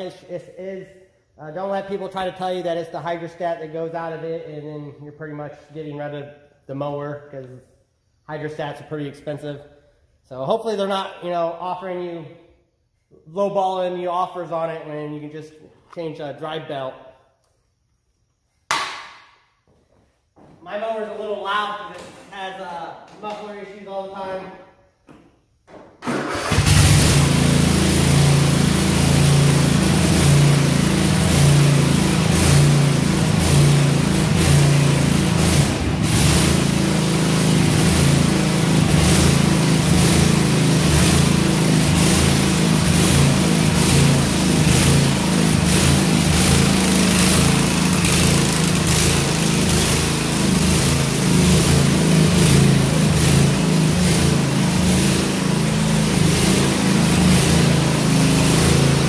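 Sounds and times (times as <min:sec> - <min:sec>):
mower engine running: 0:26.0 - 0:59.0.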